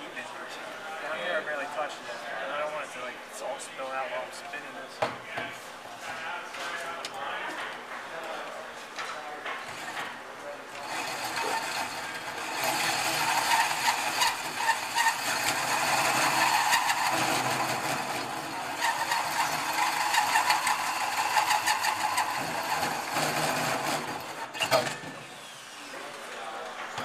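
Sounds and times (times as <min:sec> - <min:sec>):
hole saw drilling through metal: 0:10.8 - 0:25.8.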